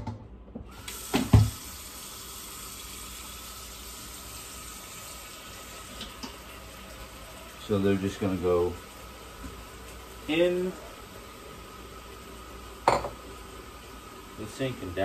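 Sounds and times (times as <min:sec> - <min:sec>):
tap running into sink: 0:00.6 - 0:01.7.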